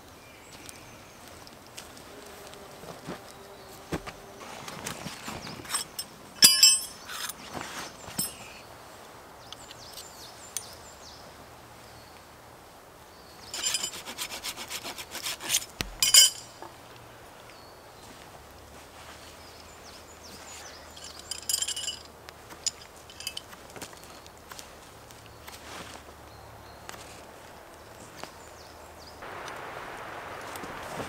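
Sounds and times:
knife scraping wooden stick: 13.6s - 16.5s.

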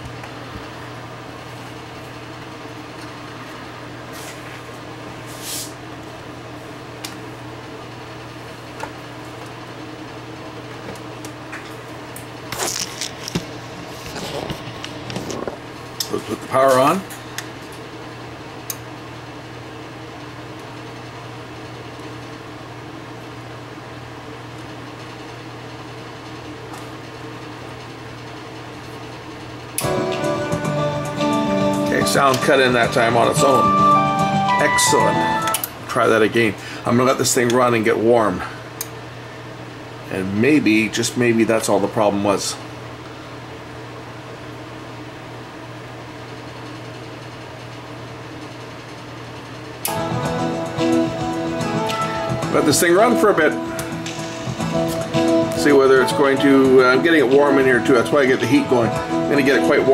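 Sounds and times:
steady low hum: 0.0s - 59.9s
rustle of hands handling wiring: 12.5s - 15.5s
music from speakers: 29.8s - 35.5s, 49.9s - 57.8s, 58.4s - 59.9s.

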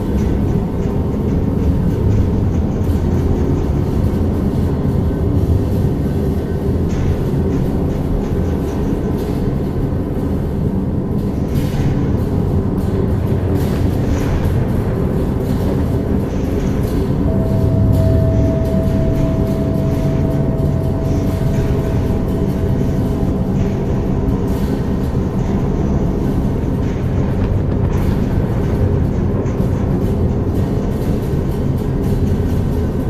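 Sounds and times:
deep chanting drone: 12.6s - 33.0s
thin high tone: 17.3s - 23.9s.

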